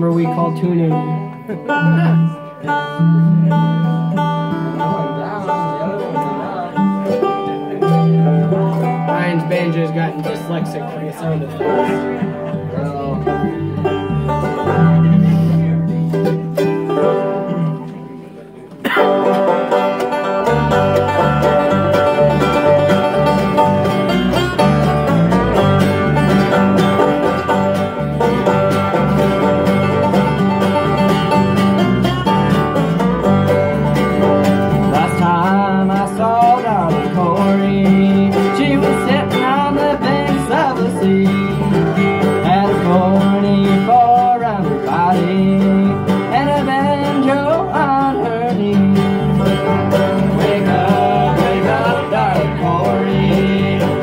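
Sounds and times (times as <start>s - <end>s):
banjo: 0.0s - 54.0s
guitars: 0.0s - 54.0s
mandolin: 0.0s - 54.0s
low stepping bass line: 19.8s - 47.5s.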